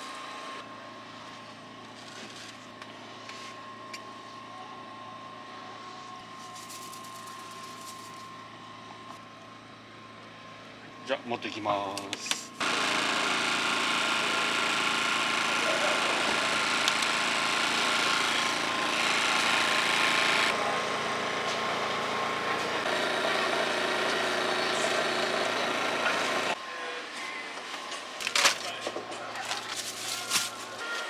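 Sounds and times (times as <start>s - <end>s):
small engine running: 6.4s - 8.4s, 12.6s - 26.6s.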